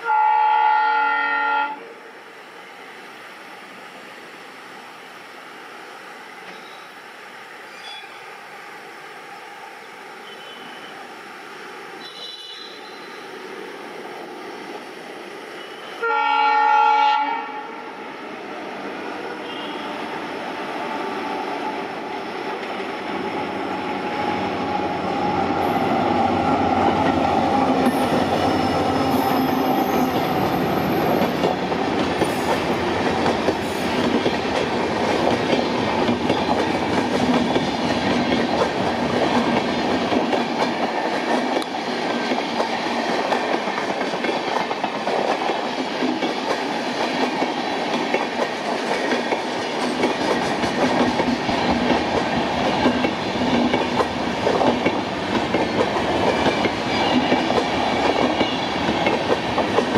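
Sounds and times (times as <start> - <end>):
diesel locomotive passing: 0.0 - 59.9
train wheels clacking on rail joints: 26.8 - 59.9.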